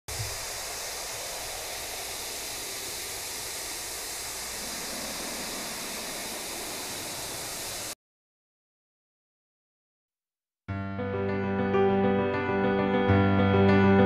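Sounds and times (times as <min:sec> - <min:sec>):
steady rushing hiss: 0:00.0 - 0:08.0.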